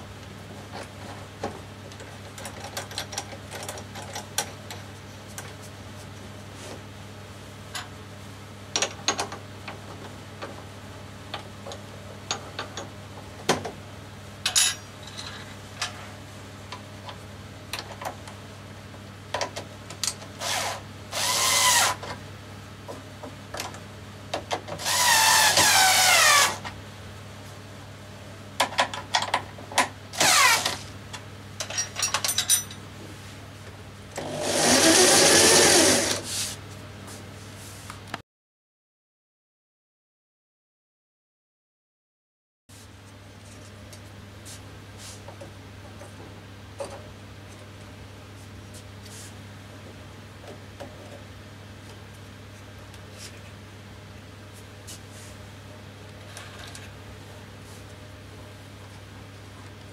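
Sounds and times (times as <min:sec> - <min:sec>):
electric drill running grinder: 0:20.4 - 0:22.0, 0:24.8 - 0:26.6, 0:34.2 - 0:36.3.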